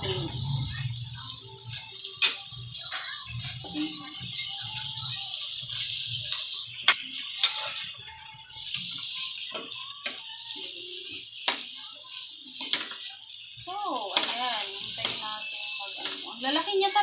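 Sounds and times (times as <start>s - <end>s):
quiet background music: 0.0s - 17.0s
shrimp sizzling in a wok: 0.0s - 17.0s
spatula clacking against pan: 5.8s - 7.9s, 8.6s - 11.9s, 12.6s - 13.1s, 14.0s - 16.4s.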